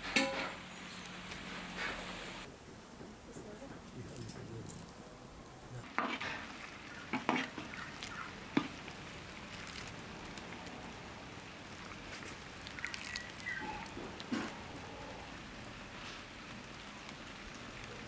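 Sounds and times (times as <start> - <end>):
steady low hiss: 0.0 - 12.8
metal spoon scraping pan: 6.0 - 7.8.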